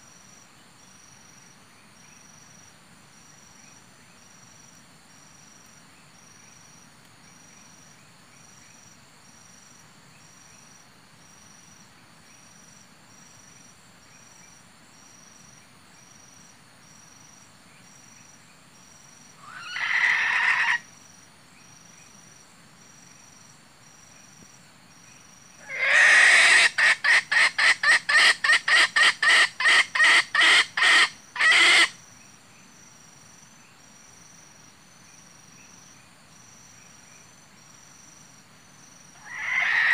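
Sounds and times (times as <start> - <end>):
insect chirping: 0.0 - 39.9
electronic junglefowl clucking calls: 25.6 - 31.9.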